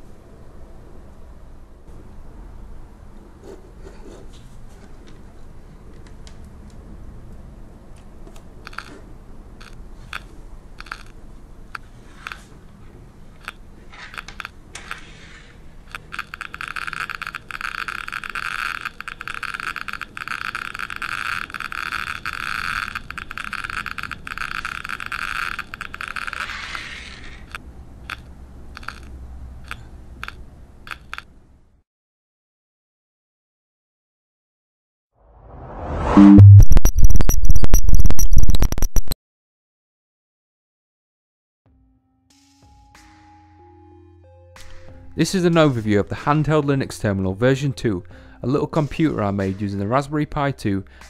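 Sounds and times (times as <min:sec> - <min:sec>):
geiger counter clicking: 0:08.6 - 0:09.0, 0:09.6 - 0:12.5, 0:13.4 - 0:15.0, 0:15.8 - 0:31.3, 0:36.5 - 0:39.2.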